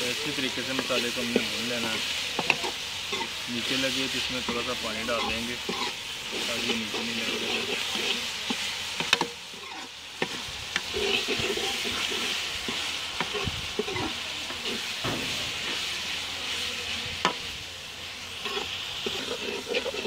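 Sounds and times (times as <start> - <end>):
masala sizzling in a pan: 0.0 - 20.0
metal spatula scraping pan: 0.4 - 16.3, 18.3 - 20.0.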